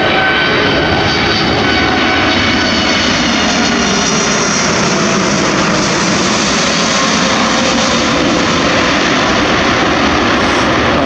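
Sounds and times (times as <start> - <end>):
jet airliner passing low overhead: 0.0 - 11.0.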